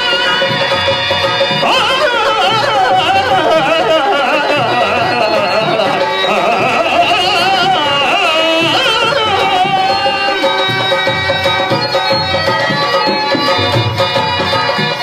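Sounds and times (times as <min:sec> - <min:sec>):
tabla: 0:00.0 - 0:15.0
person singing ornamented melody: 0:01.6 - 0:12.0.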